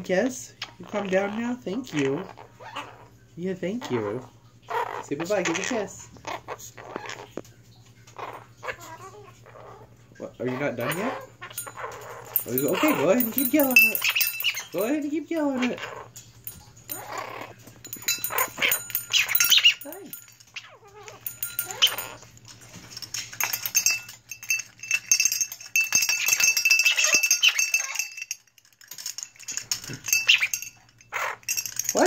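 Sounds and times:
parrot yelling: 0:00.6 - 0:07.4, 0:08.1 - 0:16.2, 0:16.9 - 0:22.3, 0:26.0 - 0:28.2, 0:30.0 - 0:32.0
metal bell toy ringing: 0:10.8 - 0:32.0.

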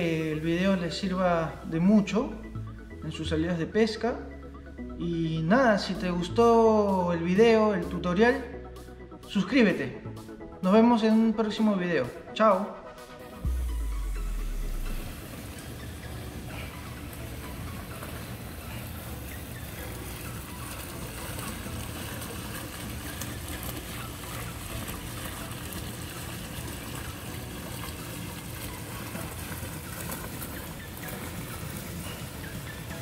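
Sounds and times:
fountain jets splashing into pool: 0:14.7 - 0:33.0
small waterfall spilling: 0:19.8 - 0:32.8.

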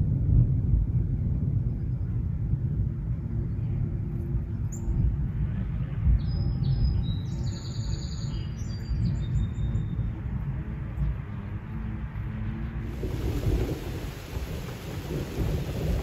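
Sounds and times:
continuous low rumble: 0:00.0 - 0:16.0
small birds chirping and trilling: 0:06.2 - 0:10.0.

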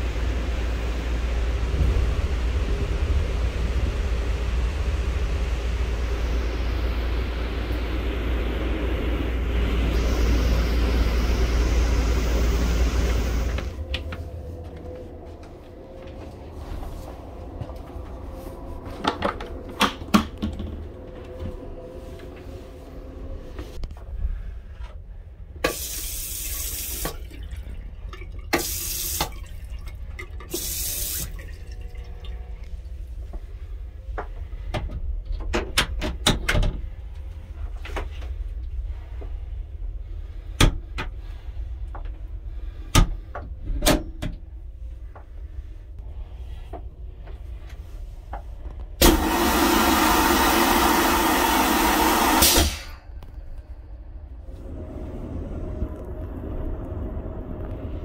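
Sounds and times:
moving train rumble: 0:00.0 - 0:58.0.

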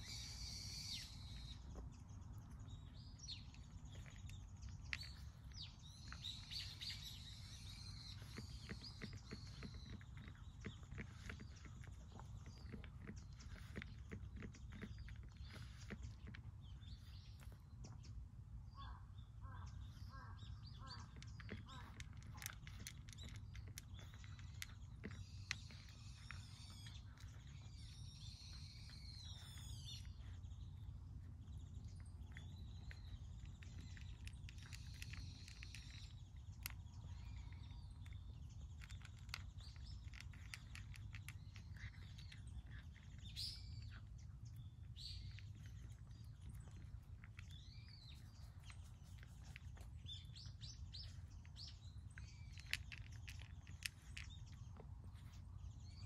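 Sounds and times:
low background rumble: 0:00.0 - 0:56.0
small birds chirping: 0:00.0 - 0:56.0
cat crunching dry kibble: 0:01.3 - 0:18.6, 0:20.8 - 0:56.0.

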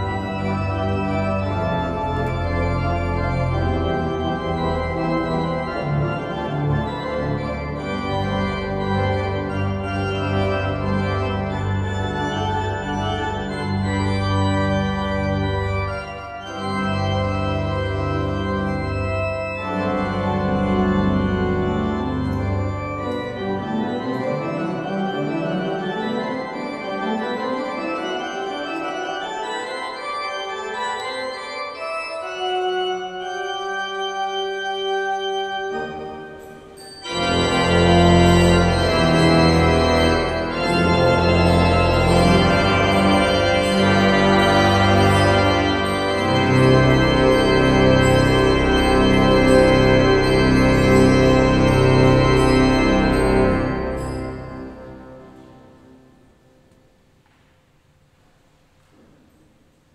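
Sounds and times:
pipe organ playing: 0:00.0 - 0:56.4.

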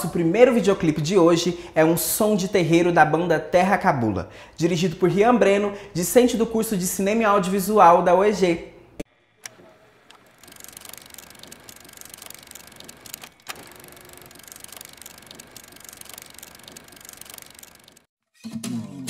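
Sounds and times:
fast mechanical clicking rattle: 0:09.4 - 0:18.1.

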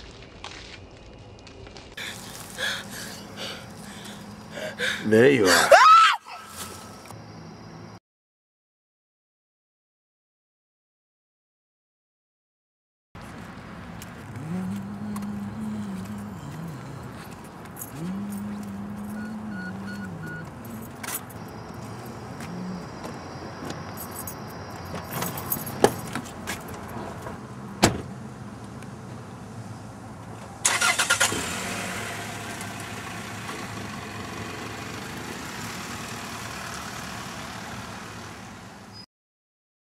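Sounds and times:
car engine starting and running: 0:02.0 - 0:05.4, 0:13.6 - 0:39.0
car door clicks: 0:27.8 - 0:28.1
car door slamming: 0:27.8 - 0:28.1.

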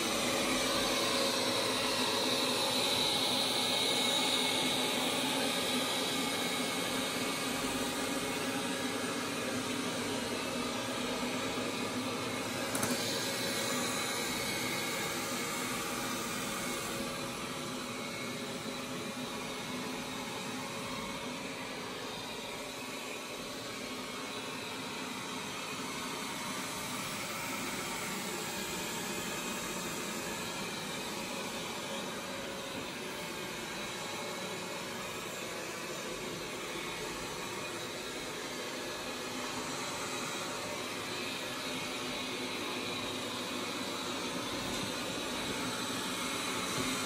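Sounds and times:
robot vacuum whirring: 0:12.4 - 0:18.2.

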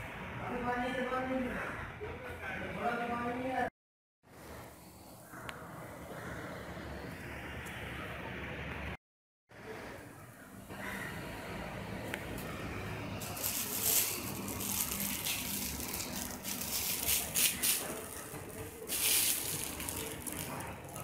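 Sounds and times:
plastic wrapping crinkling: 0:13.2 - 0:21.0.

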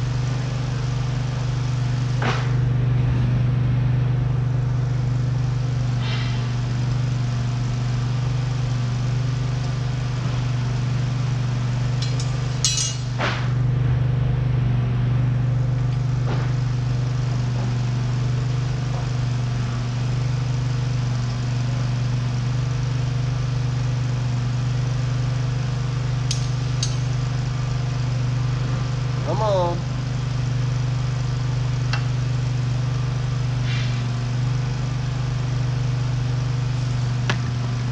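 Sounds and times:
low machine hum: 0:00.0 - 0:37.9
metal lines clinking: 0:11.9 - 0:13.2, 0:26.3 - 0:27.2.

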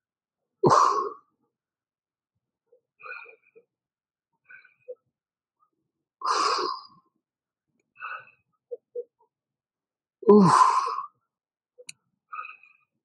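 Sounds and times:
man grunting: 0:10.3 - 0:10.8.

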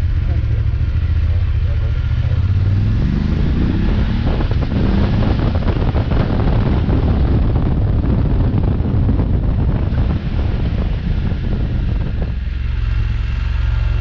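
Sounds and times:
motorcycle engine running: 0:00.0 - 0:14.0
wind buffeting microphone: 0:02.3 - 0:14.0.

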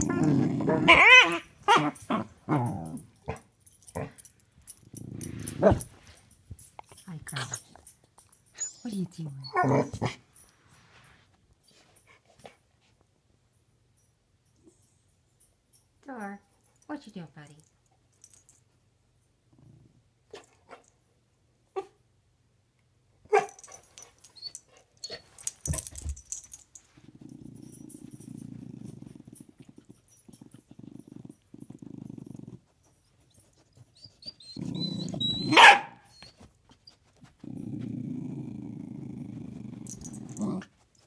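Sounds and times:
dog growling: 0:00.0 - 0:03.4, 0:09.5 - 0:10.2, 0:27.1 - 0:32.7, 0:34.5 - 0:35.3, 0:37.4 - 0:40.8
knocks and rustles: 0:03.3 - 0:08.4, 0:25.2 - 0:29.8
dog barking: 0:35.5 - 0:36.0.

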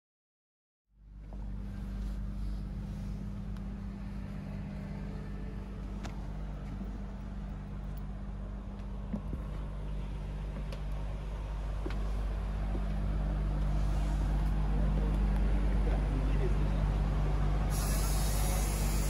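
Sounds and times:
bus engine drone: 0:01.0 - 0:19.0.

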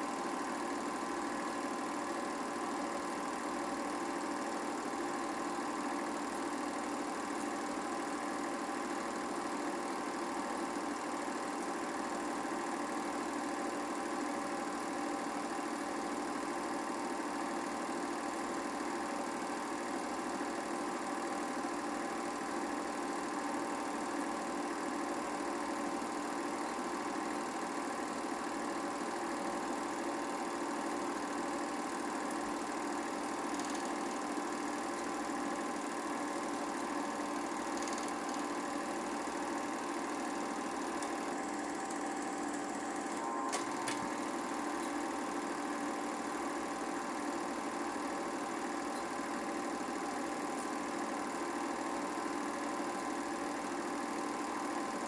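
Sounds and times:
film projector whirring: 0:00.0 - 0:55.0
sharp click: 0:33.5 - 0:34.0, 0:37.8 - 0:38.4.

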